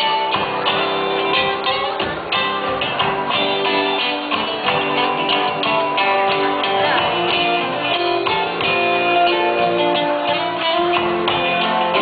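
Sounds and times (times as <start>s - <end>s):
band playing guitars: 0.0s - 12.0s.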